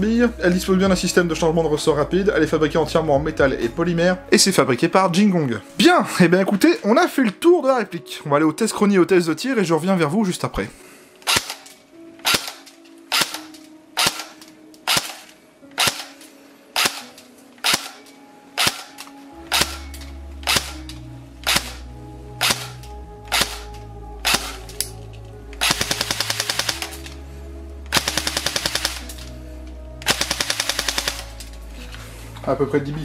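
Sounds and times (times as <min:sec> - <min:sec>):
airsoft gun firing: 0:11.2 - 0:16.1, 0:16.8 - 0:18.0, 0:18.6 - 0:19.8, 0:21.5 - 0:21.8, 0:22.4 - 0:22.7, 0:23.3 - 0:24.6, 0:25.6 - 0:27.0, 0:27.9 - 0:29.1, 0:30.0 - 0:31.3.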